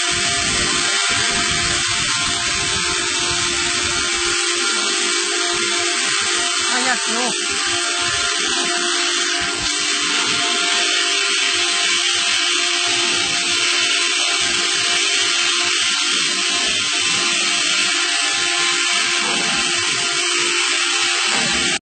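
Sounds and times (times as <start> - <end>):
machine hissing and humming: 0.0 - 21.8.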